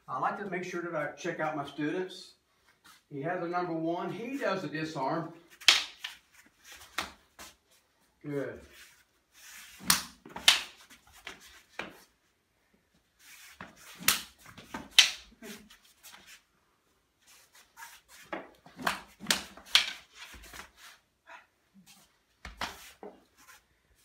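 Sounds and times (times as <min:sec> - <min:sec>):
hands slapping: 0:05.5 - 0:06.2, 0:06.8 - 0:07.6, 0:09.8 - 0:12.0, 0:13.6 - 0:16.2, 0:18.2 - 0:20.7, 0:22.4 - 0:23.1
sticks clacking: 0:05.5 - 0:06.2, 0:09.8 - 0:12.0, 0:13.6 - 0:15.4, 0:18.3 - 0:20.7.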